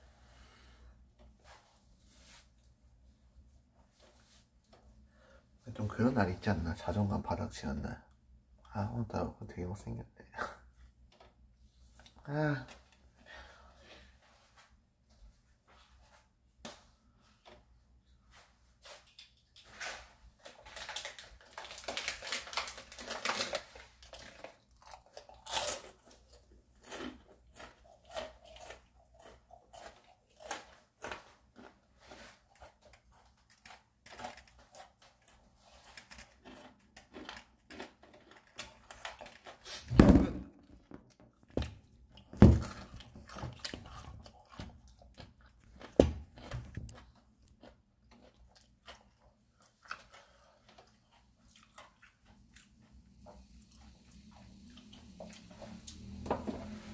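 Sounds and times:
person chewing: 20.5s - 39.8s, 42.1s - 56.2s
thumps: 39.9s - 41.7s.

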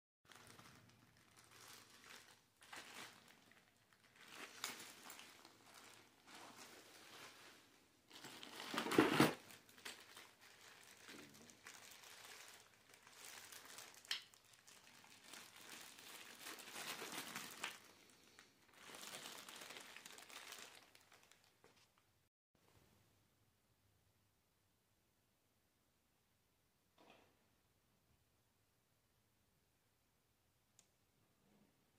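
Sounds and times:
plastic wrapping crinkling: 0.3s - 22.1s.

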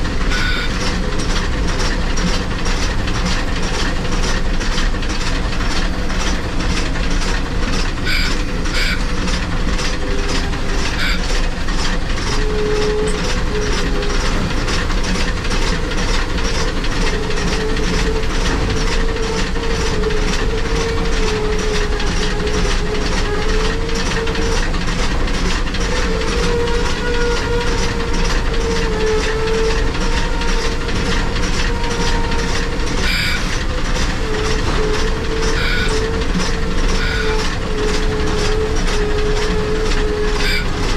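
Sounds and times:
steam locomotive exhaust chuffs: 0.0s - 40.9s
wavering squeal: 0.2s - 0.8s, 8.0s - 14.5s, 25.8s - 40.9s
running gear clatter: 0.2s - 40.9s.

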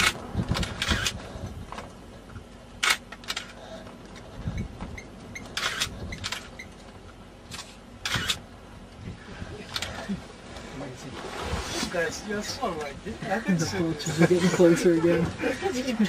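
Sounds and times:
camera shutter clicks: 0.0s - 1.2s, 2.8s - 3.5s, 5.6s - 6.5s, 7.5s - 8.4s.

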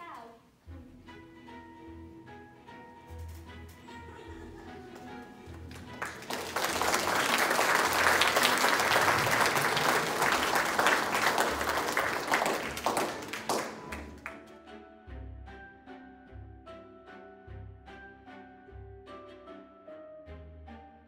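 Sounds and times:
audience applauding: 3.8s - 14.5s.

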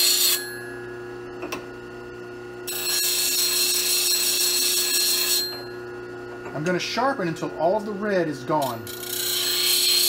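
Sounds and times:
grinder humming: 0.0s - 10.0s
chisel grinding hiss: 8.6s - 10.0s.

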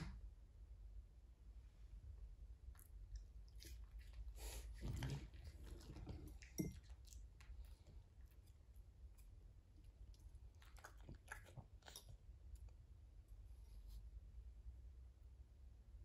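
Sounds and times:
dog chewing a treat: 2.8s - 12.7s.

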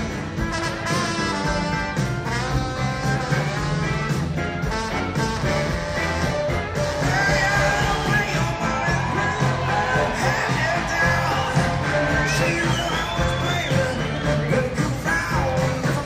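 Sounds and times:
trombone solo: 0.0s - 7.9s
live band playing: 0.0s - 16.0s.

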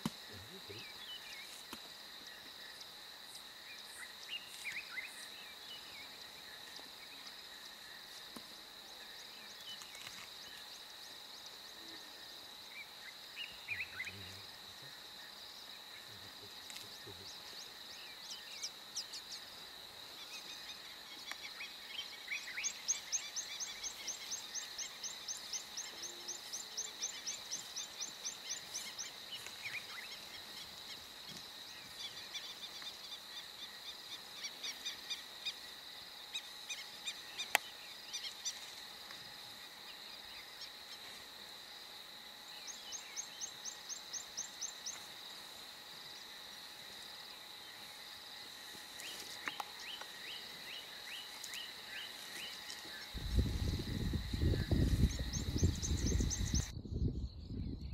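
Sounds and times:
high insect drone: 0.0s - 57.9s
bird calls: 12.8s - 15.0s.

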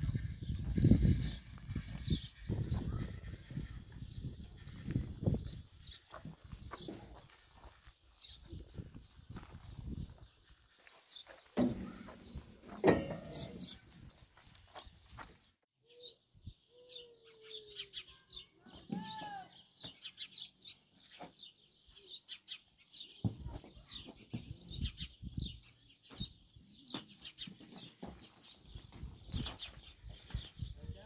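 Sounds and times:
small birds chirping: 0.0s - 12.5s, 13.2s - 31.0s
knocks and thuds: 11.6s - 13.6s.

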